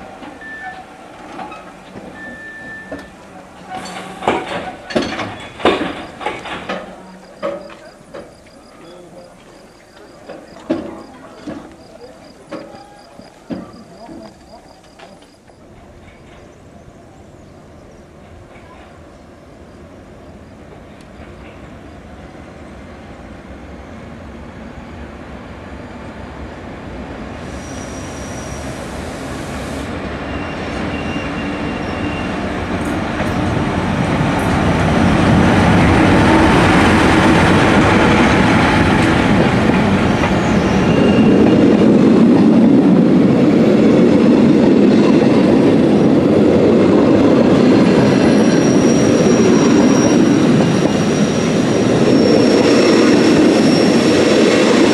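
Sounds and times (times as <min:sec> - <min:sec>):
train rumbling on rails: 0:00.0 - 0:54.9
wheel squeals: 0:00.2 - 0:09.2, 0:30.2 - 0:32.4, 0:40.2 - 0:41.7, 0:47.8 - 0:54.5.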